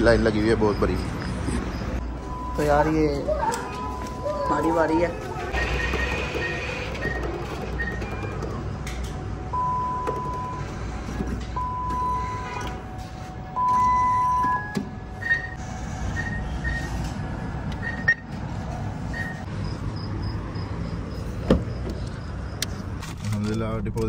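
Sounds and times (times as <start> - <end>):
atm beeps: 2.1 - 17.1, 17.8 - 18.3, 19.1 - 19.5.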